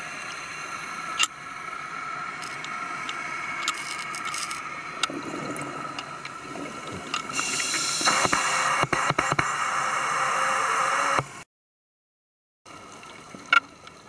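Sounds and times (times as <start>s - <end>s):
exhaled bubbles burbling: 5.1s - 8.6s
regulator clicks: 8.0s - 11.4s.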